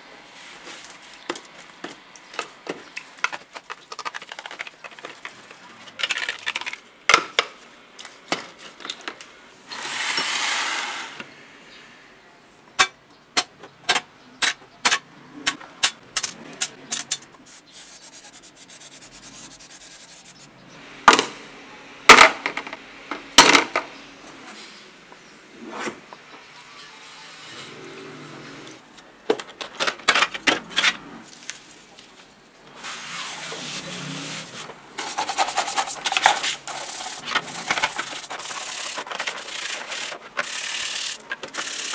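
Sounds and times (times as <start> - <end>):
sharp clicks of metal parts: 12.8 - 17.4
brush scrubbing metal parts: 16.9 - 20.6, 32.7 - 41.9.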